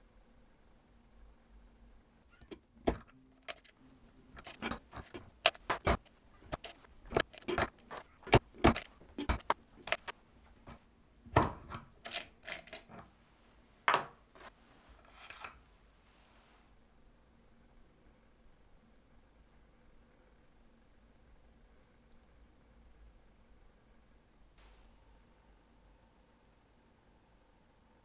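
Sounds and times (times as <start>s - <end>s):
light metallic clicks and clinks: 2.4s - 10.8s.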